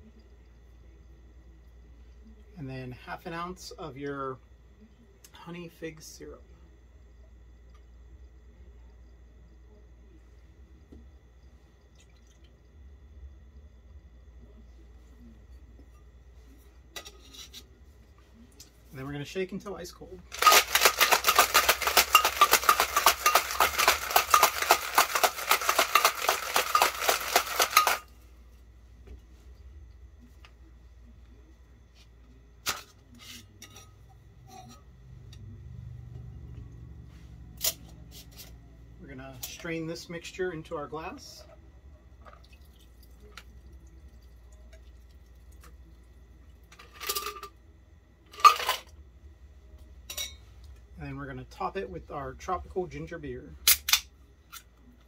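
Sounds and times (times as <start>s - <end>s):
ice rattling in metal shaker: 20.3s - 28.1s.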